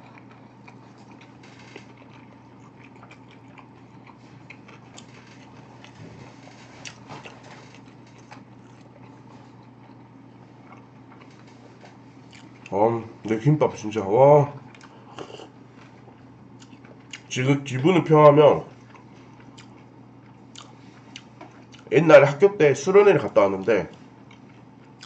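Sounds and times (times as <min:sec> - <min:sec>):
person chewing food: 0:00.0 - 0:12.8, 0:14.6 - 0:17.3, 0:18.7 - 0:21.9, 0:23.9 - 0:25.0
low hum: 0:00.0 - 0:22.0.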